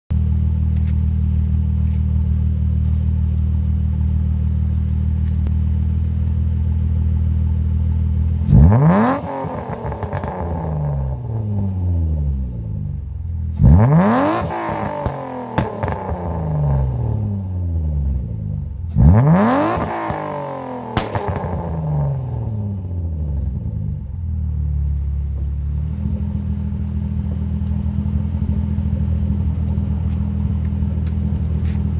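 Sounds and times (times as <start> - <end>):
exhaust crackles and pops: 0.1 - 6.4, 8.5 - 11.5, 13.0 - 17.4, 18.1 - 22.6, 23.4 - 31.9
car engine idling and revving: 0.1 - 31.9.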